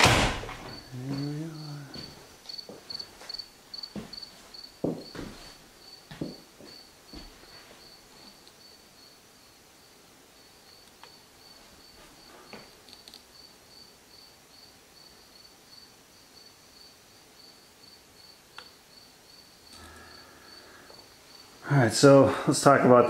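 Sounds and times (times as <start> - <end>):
insect chirping: 0.3 - 22.1
faint clicks: 10.7 - 11.2, 12.8 - 13.3, 18.5 - 18.7.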